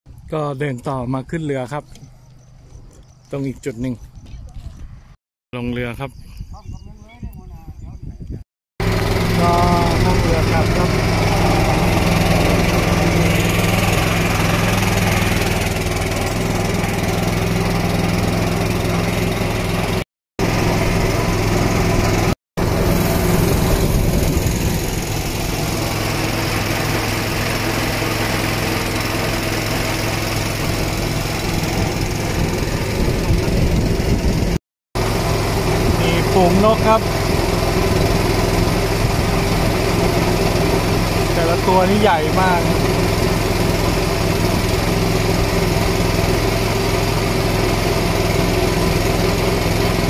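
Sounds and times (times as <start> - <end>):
boat engine humming: 0.6 - 5.2, 8.8 - 50.0
wind noise: 4.0 - 8.4, 22.7 - 25.4, 31.7 - 34.6
water noise: 18.4 - 50.0.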